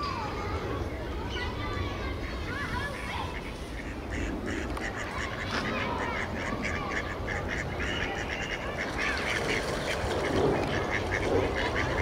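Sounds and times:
ducks quacking: 0:02.1 - 0:12.0
splashing water: 0:08.2 - 0:12.0.

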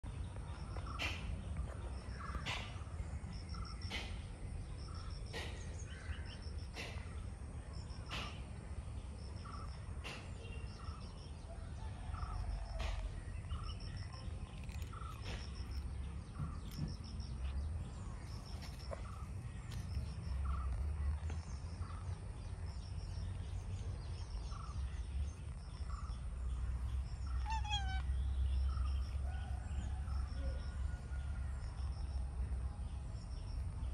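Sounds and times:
small bird chirps: 0:12.1 - 0:31.0
sharp bird call: 0:27.3 - 0:28.2.

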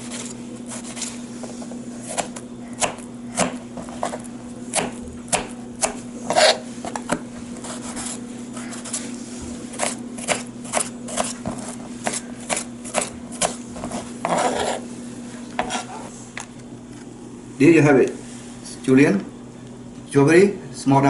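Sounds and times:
knife chopping on plastic board: 0:02.1 - 0:08.2, 0:09.7 - 0:14.8.

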